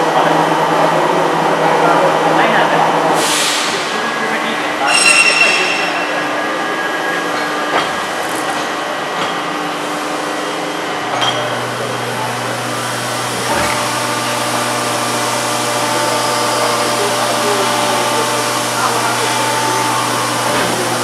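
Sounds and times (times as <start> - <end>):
moulding machine humming: 10.1 - 21.0.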